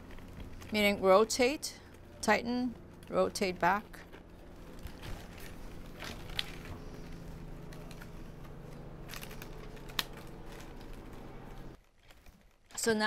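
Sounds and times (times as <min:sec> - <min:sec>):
steady low hum: 0:00.0 - 0:11.8
plastic straps clicking and rustling: 0:02.7 - 0:13.0.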